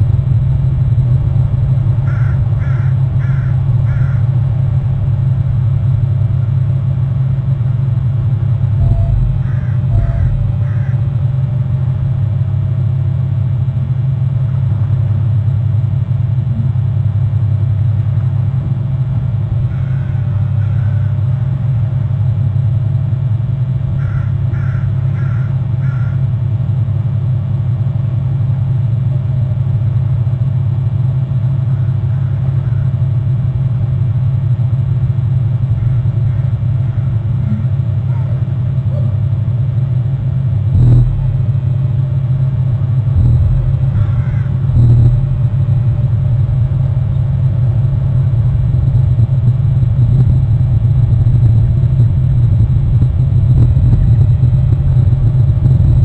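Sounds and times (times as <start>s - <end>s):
steady low rumble: 0.0s - 56.0s
short bird calls: 2.1s - 4.3s, 8.8s - 11.1s, 19.7s - 21.2s, 35.8s - 39.2s, 43.2s - 45.1s.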